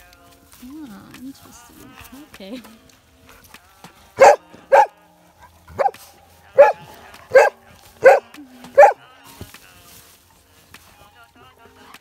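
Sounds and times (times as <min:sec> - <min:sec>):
dog barking loudly: 0:04.2 - 0:09.0.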